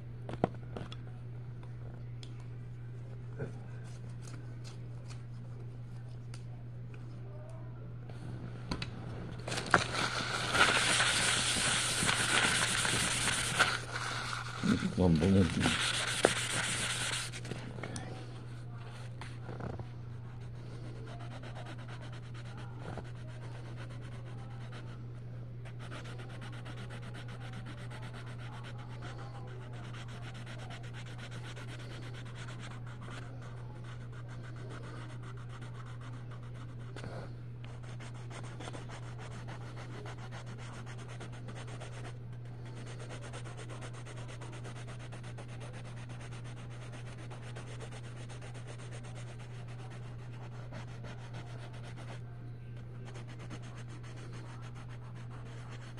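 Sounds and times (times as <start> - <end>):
steady low hum: 0.0 - 55.9
pencil scratching on paper: 9.7 - 17.5, 20.3 - 25.0, 25.6 - 52.2, 53.0 - 55.9.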